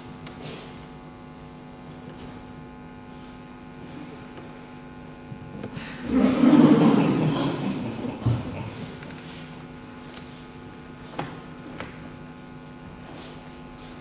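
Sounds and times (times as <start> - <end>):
electrical mains hum: 0.0 - 14.0
loud rough noise: 6.0 - 9.0.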